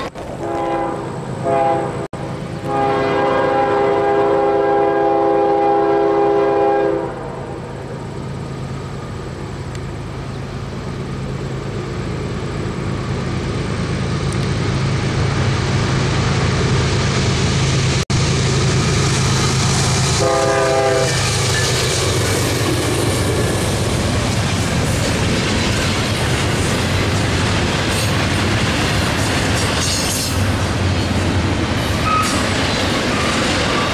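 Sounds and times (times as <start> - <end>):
diesel locomotive engine: 0.0 - 33.9
train rolling rumble and wheel clatter: 0.0 - 33.9
train horn note: 0.4 - 7.6, 20.1 - 21.7.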